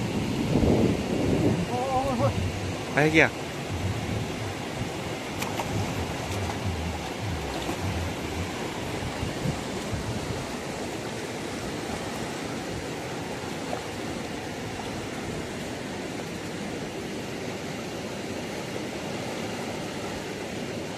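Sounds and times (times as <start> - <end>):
river water rushing: 0.0 - 20.9
soft low knocks: 3.7 - 8.8.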